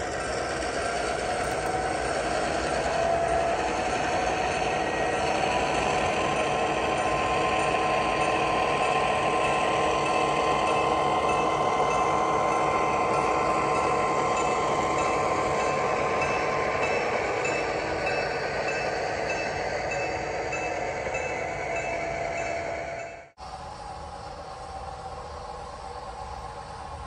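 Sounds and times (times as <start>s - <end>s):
model train whirring: 0.0s - 27.0s.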